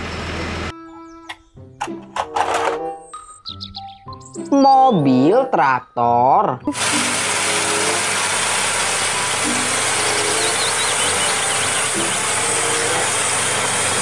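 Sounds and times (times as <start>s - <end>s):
mechanical clatter: 1.8s - 2.9s
tractor engine under load: 6.8s - 14.0s.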